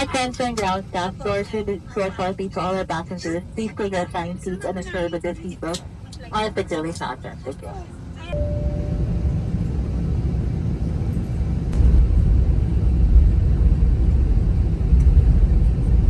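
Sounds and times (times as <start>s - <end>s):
airliner engines and airflow in cabin: 0.0s - 16.0s.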